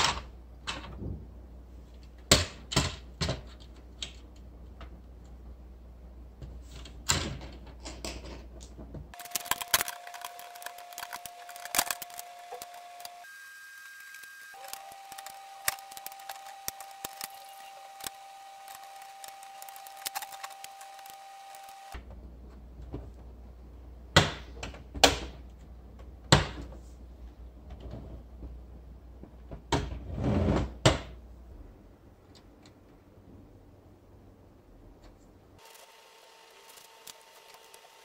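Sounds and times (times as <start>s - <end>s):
plastic parts clattering: 6.5s - 13.2s, 18.7s - 21.2s
plastic parts clicking together: 6.8s - 13.2s.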